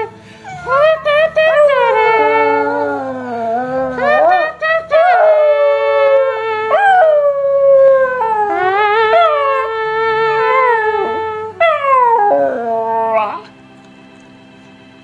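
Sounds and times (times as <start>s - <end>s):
dog howling: 0.0s - 13.5s
dog breathing: 0.1s - 0.8s.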